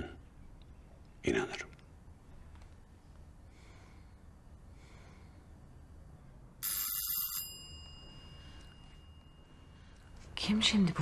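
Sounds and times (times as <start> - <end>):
doorbell ringing: 6.6 - 9.6.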